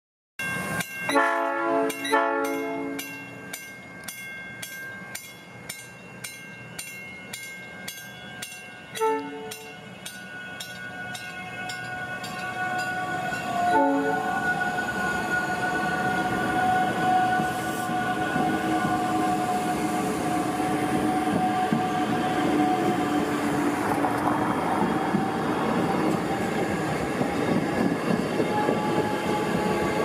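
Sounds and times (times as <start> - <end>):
bell clanging: 0.4 - 13.6
train running noise: 0.4 - 30.0
train horn blasts: 1.1 - 3.1, 8.9 - 9.8, 10.9 - 23.4, 28.4 - 30.0.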